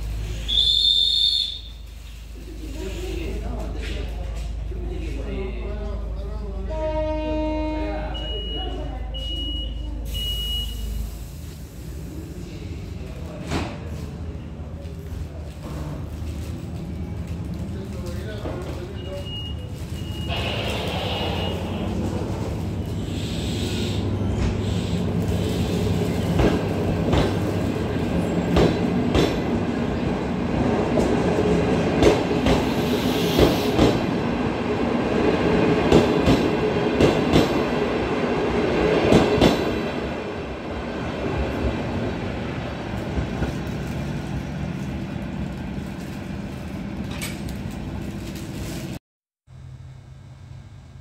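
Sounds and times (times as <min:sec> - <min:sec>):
train rumbling past: 0:10.9 - 0:51.0.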